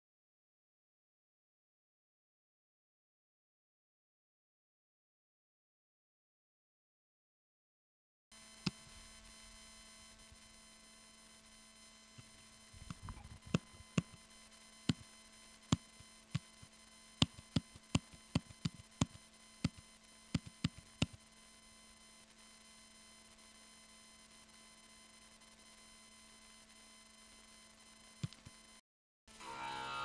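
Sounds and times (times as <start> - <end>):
faint steady hum: 8.3 - 30.0
laptop keyboard keystrokes: 12.8 - 14.2, 17.2 - 21.2.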